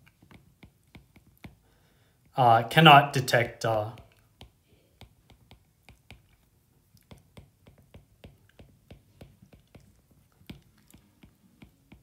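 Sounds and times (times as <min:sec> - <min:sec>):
stylus tapping on glass screen: 0:07.1 - 0:12.0.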